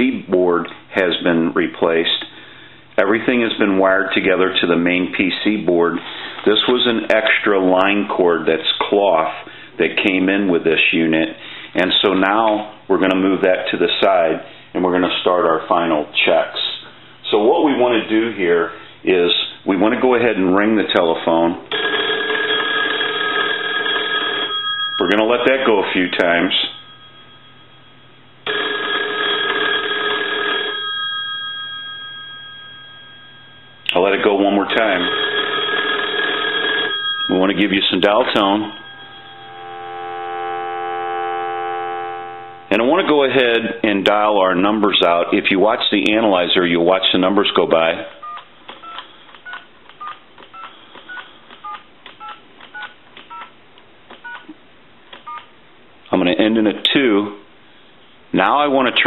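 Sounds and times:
telephone bells ringing: 21.7 - 42.8
telephone touch-tone beeps: 38.8 - 42.7, 48.2 - 53.5.

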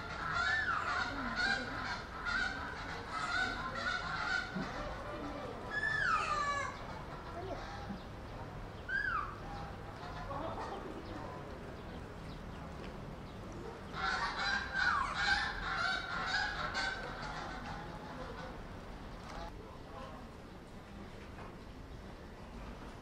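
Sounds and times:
animal calls: 0.0 - 11.9, 13.6 - 19.5.

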